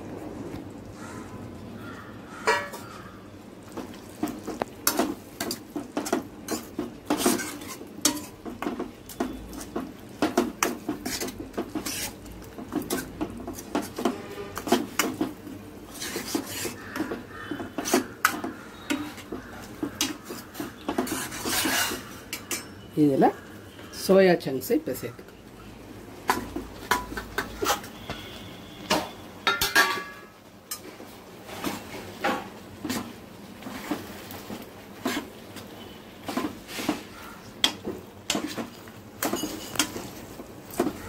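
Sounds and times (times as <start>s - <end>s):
ladle stirring and clinking in pan: 2.4s - 3.0s, 3.6s - 22.9s, 26.2s - 41.0s.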